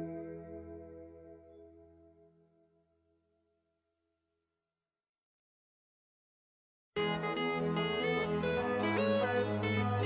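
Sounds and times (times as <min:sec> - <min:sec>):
soft ambient music: 0:00.0 - 0:02.4, 0:07.0 - 0:10.0.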